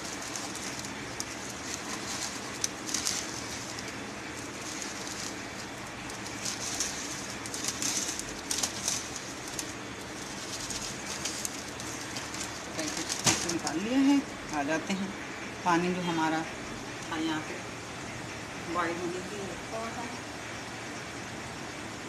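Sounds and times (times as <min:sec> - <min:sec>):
plastic packet crinkling: 0:00.0 - 0:13.9
dry noodles crackling: 0:00.0 - 0:14.8.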